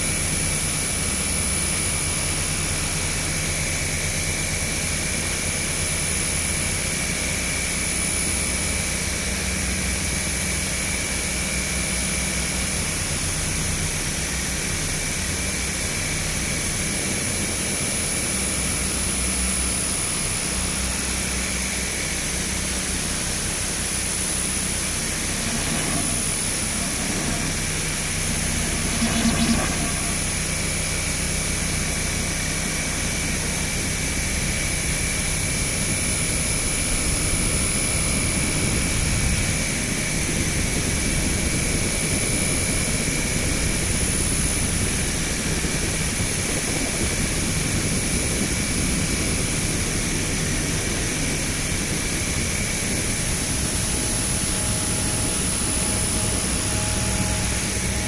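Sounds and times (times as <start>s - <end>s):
fluttering low electronic drone: 22.8s - 32.6s.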